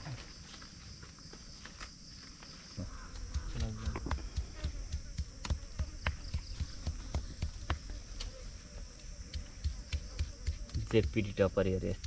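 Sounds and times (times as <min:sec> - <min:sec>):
soft low thumps: 0:02.8 - 0:08.2, 0:08.8 - 0:11.4.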